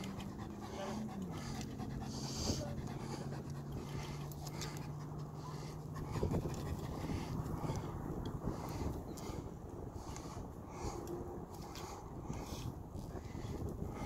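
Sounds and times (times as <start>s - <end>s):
dog panting: 0.0s - 14.0s
steady low hum: 0.0s - 14.0s.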